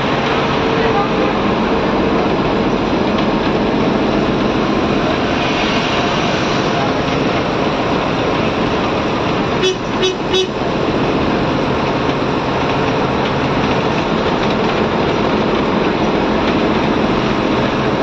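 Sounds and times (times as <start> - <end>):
bus engine and road noise: 0.0 - 18.0
horn toots: 9.6 - 10.6.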